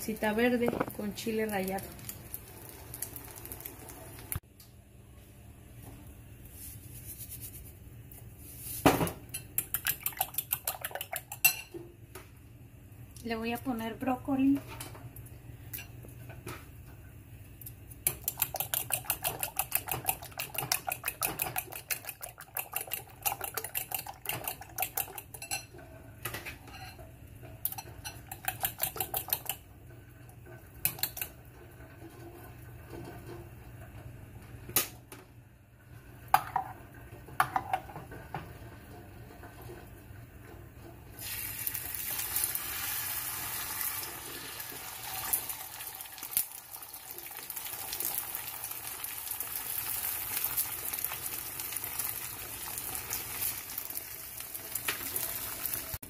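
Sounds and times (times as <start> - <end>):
egg sizzling in a pan: 0.0 - 4.4, 41.2 - 56.0.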